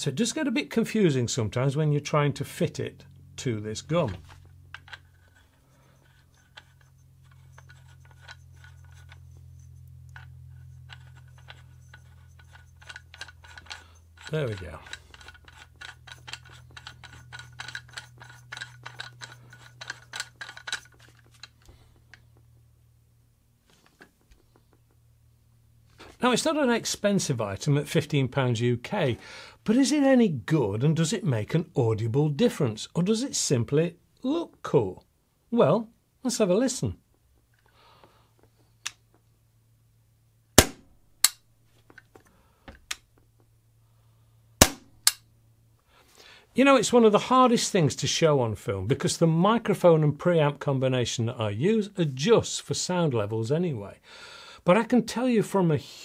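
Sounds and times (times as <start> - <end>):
silencer twisting clicks and scrapes: 4.0 - 22.7, 23.6 - 25.1, 37.1 - 39.3, 41.2 - 43.5, 44.6 - 45.3
air pistol shots: 40.6 - 40.9, 44.6 - 45.2
sharp crack: 40.6 - 41.4, 44.6 - 45.3.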